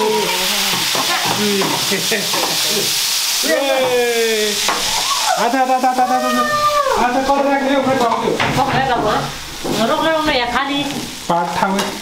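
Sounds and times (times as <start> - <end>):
roast chicken sizzling: 0.0 - 12.0
voices calling out: 3.4 - 8.4.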